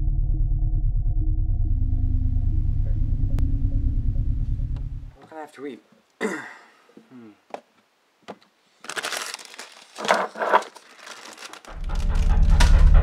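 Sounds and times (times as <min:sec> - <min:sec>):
low droning music: 0:00.0 - 0:05.2, 0:11.6 - 0:13.0
rustling and crinkling: 0:07.5 - 0:12.9.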